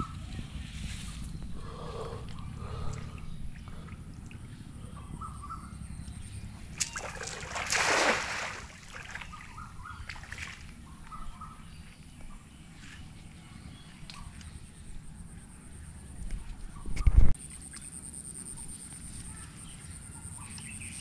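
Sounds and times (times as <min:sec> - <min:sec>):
low steady rumble: 0:00.0 - 0:21.0
net splashing into water: 0:06.8 - 0:09.4.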